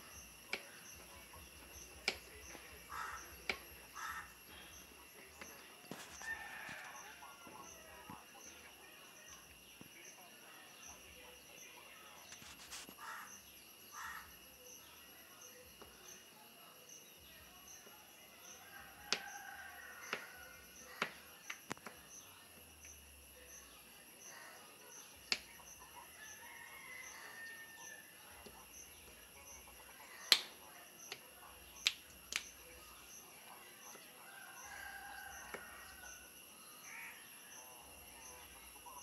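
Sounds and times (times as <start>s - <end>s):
faint calls: 0.0s - 9.0s, 12.7s - 14.4s.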